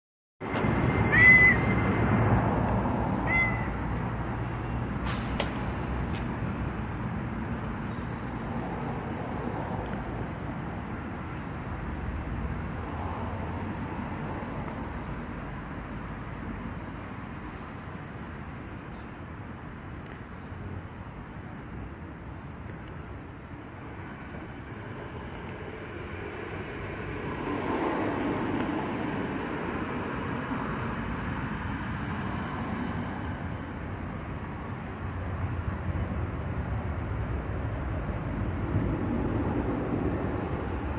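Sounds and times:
background traffic noise: 0:00.4 - 0:40.9
cat meowing: 0:03.2 - 0:03.8.

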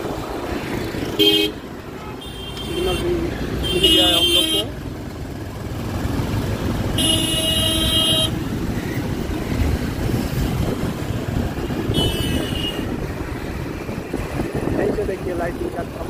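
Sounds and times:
road traffic engines: 0:00.0 - 0:16.0
vehicle horn honking: 0:01.2 - 0:04.7, 0:07.0 - 0:08.4, 0:11.9 - 0:12.9.

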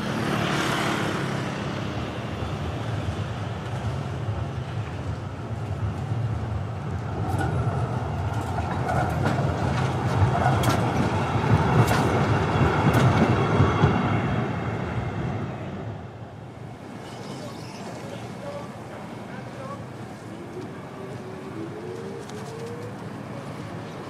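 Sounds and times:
electric tram rolling past: 0:00.0 - 0:24.0
tram wheels clacking on rail joints: 0:02.8 - 0:14.7.

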